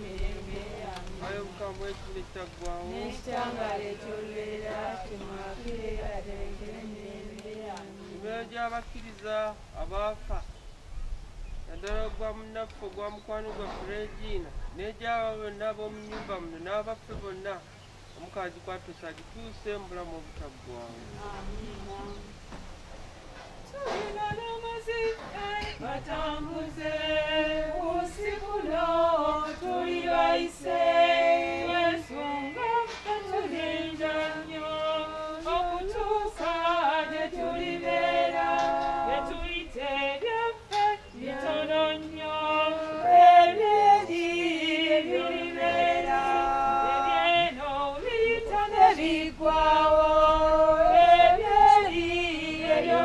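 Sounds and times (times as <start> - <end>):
choir singing a hymn: 0.0 - 9.0, 20.7 - 23.1, 23.7 - 53.0.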